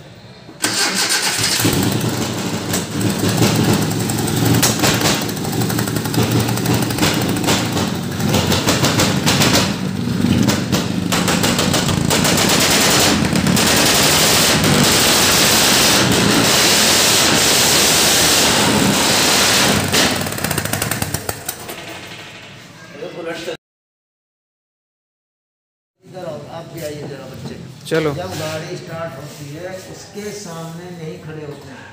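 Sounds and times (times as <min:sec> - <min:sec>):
car engine running roughly: 0:00.6 - 0:22.2
engine popping and crackling: 0:00.6 - 0:22.4.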